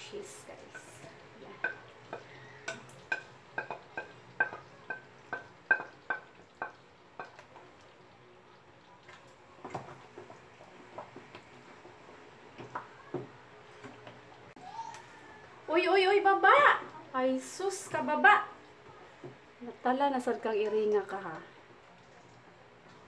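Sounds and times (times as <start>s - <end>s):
stirring sauce: 1.0s - 8.0s
wooden spatula knocking pan: 1.6s - 7.4s.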